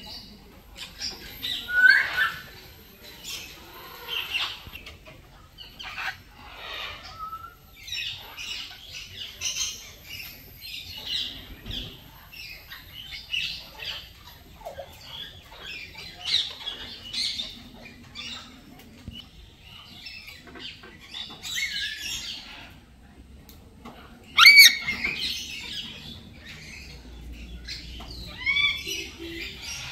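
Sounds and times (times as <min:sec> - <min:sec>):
parrots chirping and squawking: 0:00.8 - 0:04.8, 0:05.6 - 0:10.2, 0:24.2 - 0:29.9.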